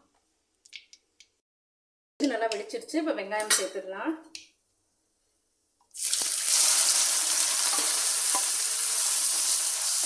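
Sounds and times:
onions sizzling in hot oil: 5.9s - 10.0s.

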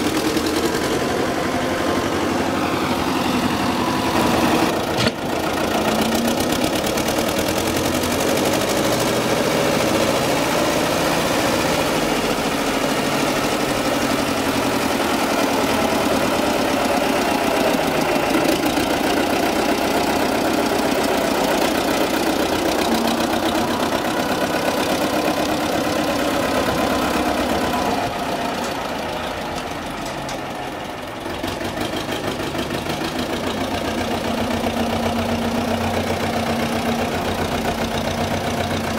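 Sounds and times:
tractor diesel engine running: 0.0s - 38.9s.

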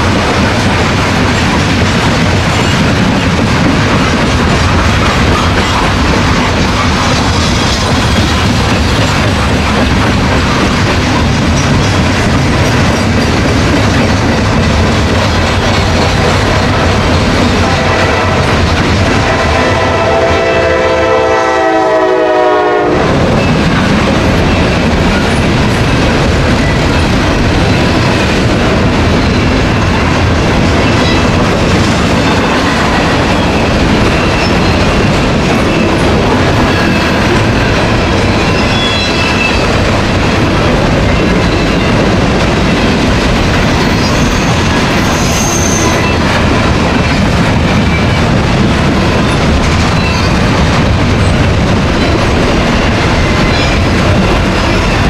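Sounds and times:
train cars rolling on rails: 0.0s - 55.0s
locomotive horn chord: 19.2s - 23.2s.

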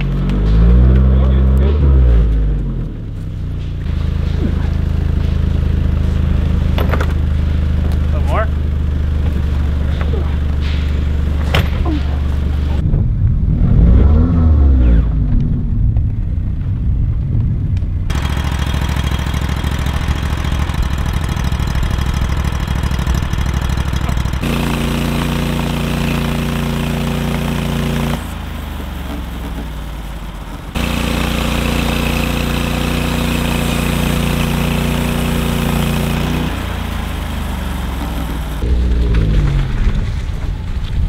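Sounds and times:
petrol engine under load: 18.1s - 41.0s
band blade cutting log: 24.1s - 28.3s.

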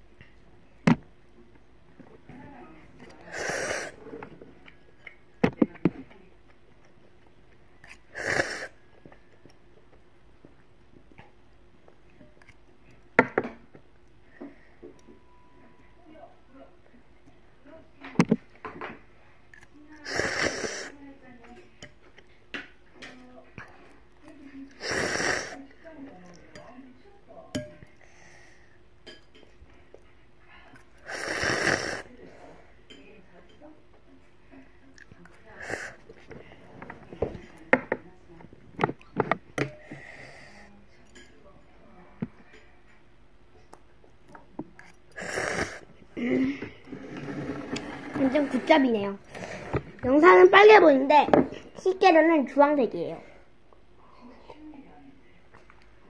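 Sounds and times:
noodles slurped: 8.1s - 8.7s, 20.0s - 20.9s, 24.8s - 25.6s, 31.0s - 32.1s.

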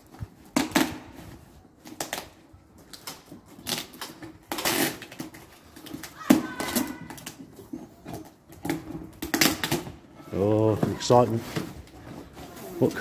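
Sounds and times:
bag rustling and crinkling: 10.4s - 13.0s.

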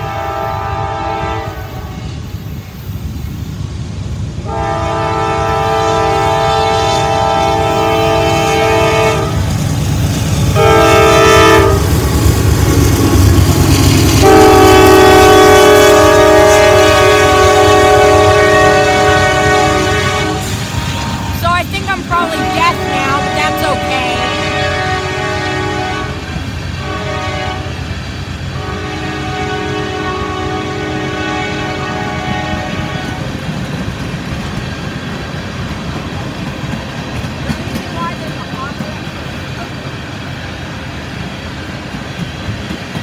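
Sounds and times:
locomotive air horn: 0.0s - 2.2s, 4.4s - 9.5s, 10.5s - 11.9s, 14.2s - 27.8s, 28.5s - 33.3s
locomotive engine rumble: 0.0s - 43.0s
train wheels on rails: 0.0s - 43.0s.

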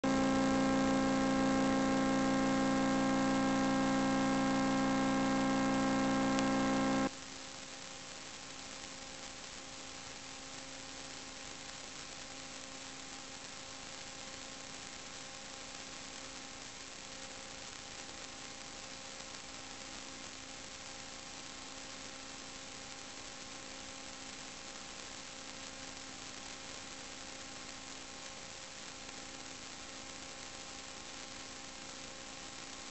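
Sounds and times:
buzzy electrical hum: 0.0s - 7.1s.

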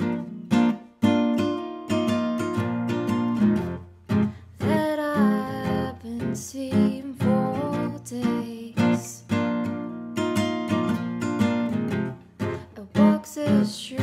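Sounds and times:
strummed acoustic guitar: 0.0s - 14.0s
person singing: 4.6s - 9.3s, 12.6s - 14.0s.

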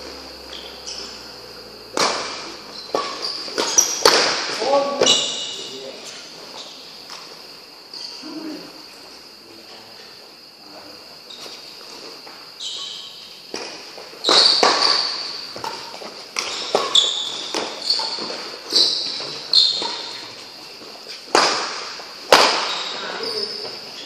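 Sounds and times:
shoes squeaking on court floor: 0.0s - 10.4s, 11.2s - 24.0s
racket striking shuttlecock: 1.9s - 4.6s, 13.5s - 18.4s, 21.3s - 22.9s.

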